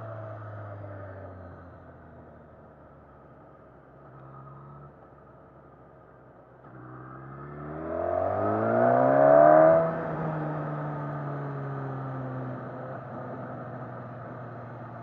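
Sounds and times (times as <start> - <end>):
motorcycle engine accelerating: 6.7 - 15.0.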